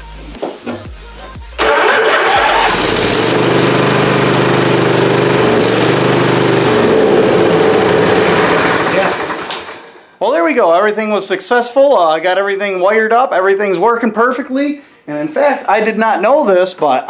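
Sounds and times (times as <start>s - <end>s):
engine starting and idling: 1.6s - 10.2s.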